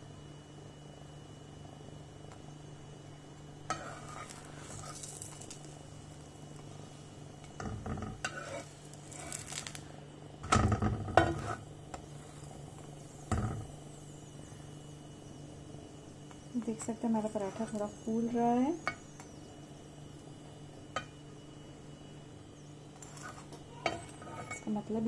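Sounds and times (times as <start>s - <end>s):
flatbread sizzling: 0.0s - 25.0s
spatula scraping on hot griddle: 3.6s - 13.7s, 16.6s - 19.0s, 22.9s - 25.0s.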